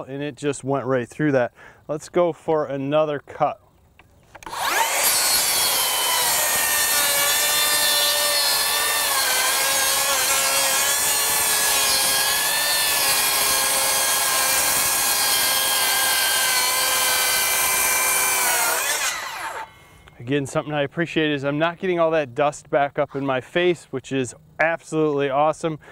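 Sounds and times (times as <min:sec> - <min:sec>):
circular saw cutting wood: 0:04.4 - 0:20.2.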